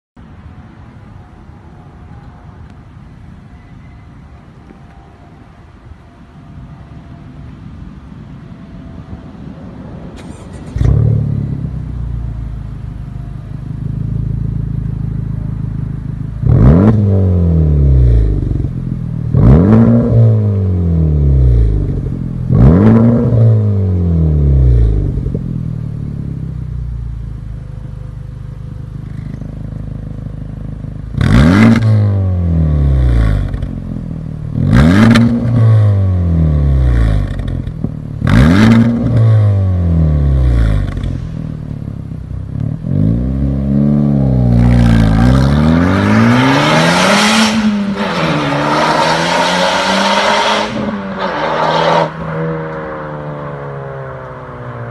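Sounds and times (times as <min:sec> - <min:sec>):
car engine idling and revving: 0:06.3 - 0:54.9.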